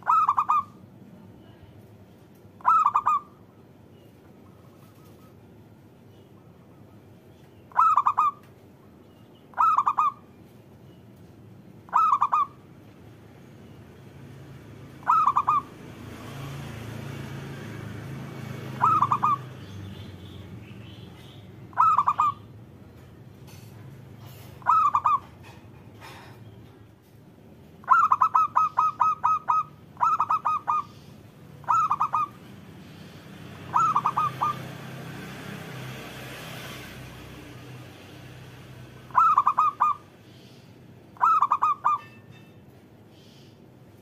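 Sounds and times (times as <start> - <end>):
dove cooing: 0.0 - 0.8, 2.6 - 3.3, 7.7 - 8.4, 9.5 - 10.2, 11.9 - 12.6, 15.0 - 15.7, 18.6 - 19.5, 21.7 - 22.4, 24.2 - 26.2, 27.8 - 31.0, 31.6 - 32.5, 33.7 - 34.7, 39.1 - 40.0, 41.2 - 42.1.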